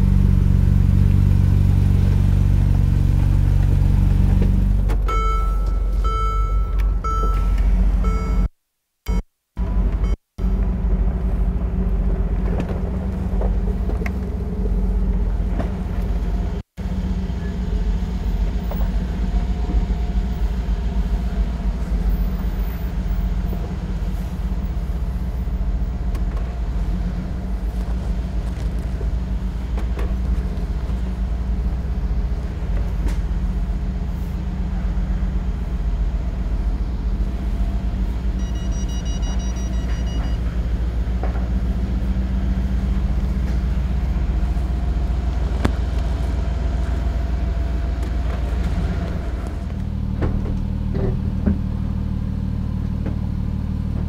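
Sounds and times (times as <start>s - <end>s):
engine low rumble: 0.0s - 8.5s, 9.1s - 54.0s
high electronic beep: 5.1s - 8.5s, 38.4s - 40.4s.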